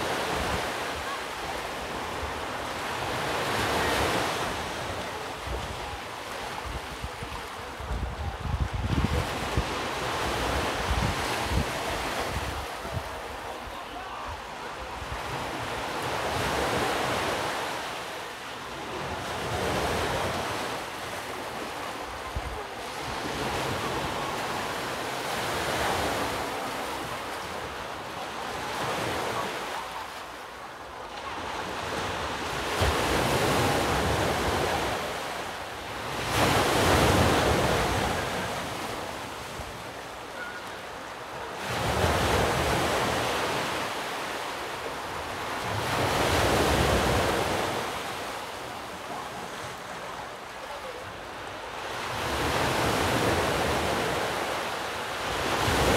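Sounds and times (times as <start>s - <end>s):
sea surf washing in and out: 0.0s - 55.9s
wind buffeting microphone: 6.6s - 13.4s.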